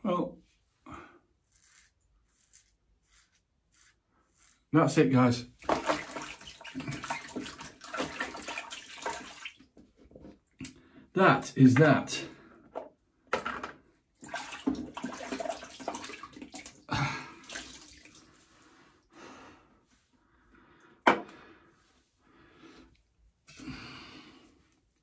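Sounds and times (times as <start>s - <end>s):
water splashing in a basin: 5.6s - 9.8s, 14.2s - 18.3s.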